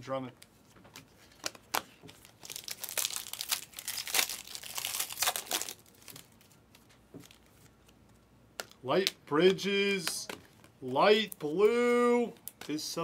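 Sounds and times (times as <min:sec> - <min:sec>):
foil wrapper tearing and crinkling: 0:01.4 - 0:06.5.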